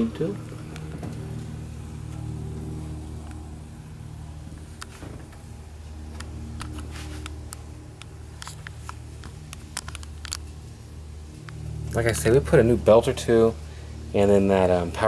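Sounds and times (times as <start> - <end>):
handling clicks and rustles: 4.6 - 10.8.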